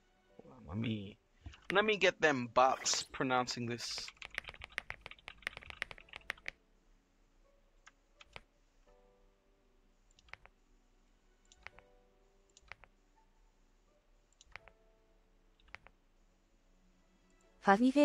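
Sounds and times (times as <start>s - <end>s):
faint keyboard typing: 0.8s - 2.1s, 2.7s - 6.6s, 7.8s - 8.5s, 10.1s - 10.6s, 11.4s - 11.9s, 12.5s - 13.0s, 14.3s - 14.8s, 15.6s - 16.0s.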